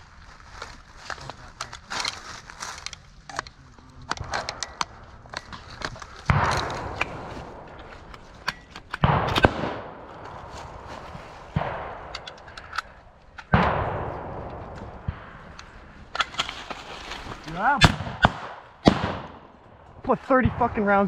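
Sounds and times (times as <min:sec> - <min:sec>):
sharp pops and clicks: 0:02.8 - 0:10.4, 0:11.5 - 0:16.8
blank gunshots with echo: 0:06.3 - 0:16.5, 0:17.7 - 0:19.8.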